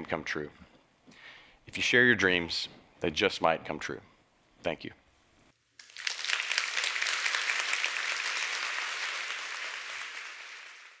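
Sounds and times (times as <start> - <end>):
audience applauding: 5.8 - 11.0.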